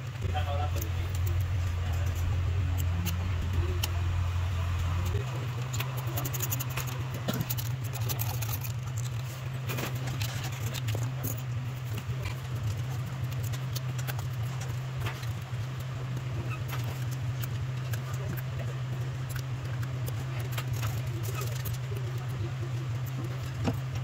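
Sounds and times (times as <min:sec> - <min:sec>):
low electrical hum: 0:00.0 - 0:24.0
metal tools clicking and scraping: 0:05.0 - 0:15.4.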